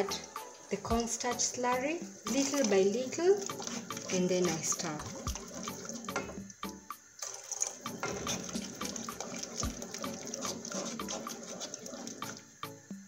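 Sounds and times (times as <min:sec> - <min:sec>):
sauce boiling and bubbling: 0:00.0 - 0:13.0
wooden spoon scraping a pot: 0:02.2 - 0:06.4, 0:07.2 - 0:12.4.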